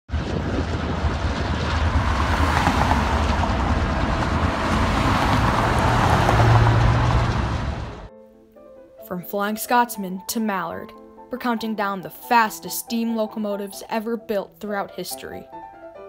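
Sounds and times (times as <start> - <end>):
diesel locomotives rumbling past: 0.1 - 8.1
pickup truck driving by: 0.2 - 8.1.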